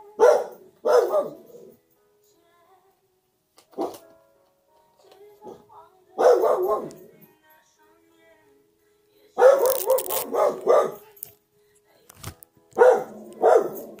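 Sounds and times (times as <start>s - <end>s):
small dog barking: 0.2s - 1.5s, 6.2s - 7.0s, 9.4s - 11.1s, 12.8s - 14.0s.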